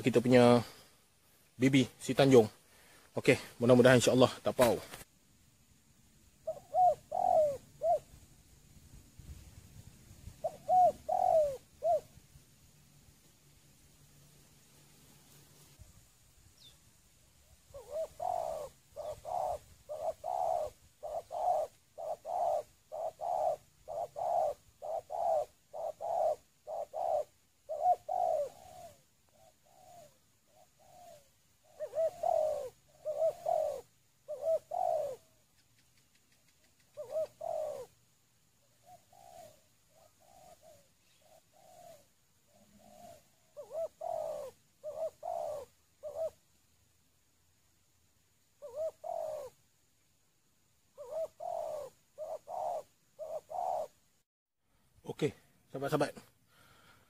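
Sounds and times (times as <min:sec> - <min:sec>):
doves cooing: 0:06.4 - 0:08.2, 0:10.3 - 0:12.2, 0:17.4 - 0:46.7, 0:48.6 - 0:49.8, 0:50.9 - 0:54.0.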